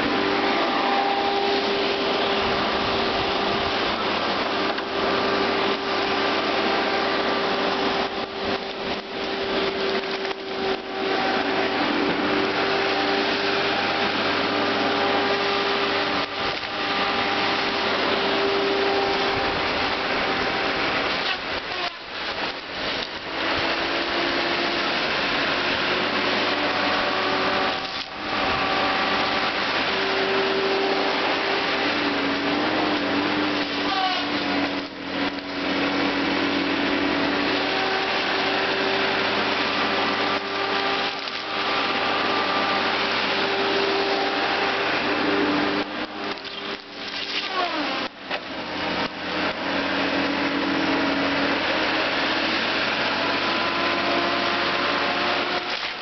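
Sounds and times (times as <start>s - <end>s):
heavy machine engine and hydraulics: 0.0s - 56.0s
hydraulic whining: 0.0s - 56.0s.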